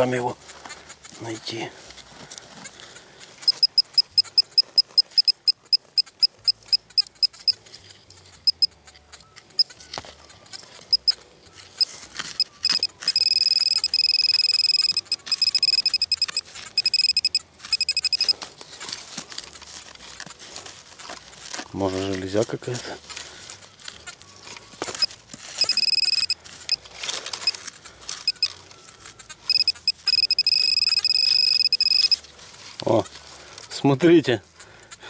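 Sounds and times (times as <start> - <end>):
fingers scratching in soil: 0.0 - 35.0
high-pitched pinpointer beeping: 3.4 - 7.6, 8.2 - 18.4, 23.8 - 32.3.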